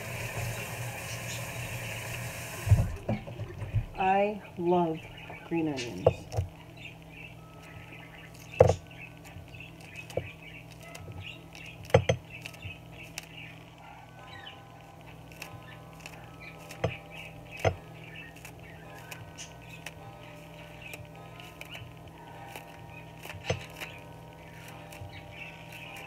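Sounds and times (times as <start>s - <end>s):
steady low hum: 0.0s - 26.0s
scissors snipping green onion: 15.2s - 20.0s, 22.4s - 26.0s.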